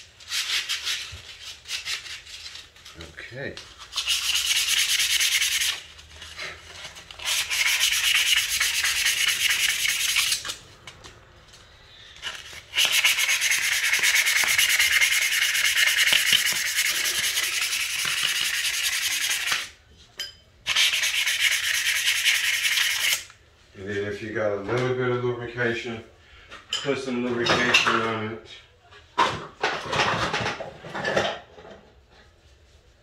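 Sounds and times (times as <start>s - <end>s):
metal rod being sanded: 3.8s - 5.9s, 7.2s - 10.5s, 12.7s - 19.7s, 20.7s - 23.3s.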